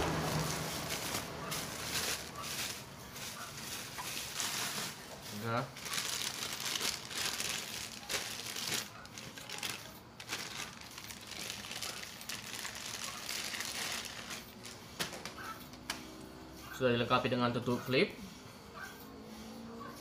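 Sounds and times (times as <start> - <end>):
plastic bag crinkling: 0.1 - 15.5.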